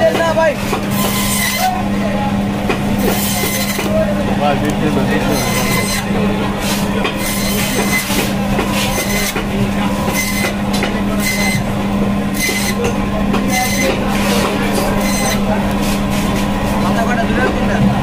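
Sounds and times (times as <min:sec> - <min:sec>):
band saw humming: 0:00.0 - 0:17.6
saw rasping through fish: 0:00.9 - 0:01.8, 0:03.0 - 0:04.0, 0:05.1 - 0:11.7, 0:12.3 - 0:12.9, 0:13.5 - 0:16.4.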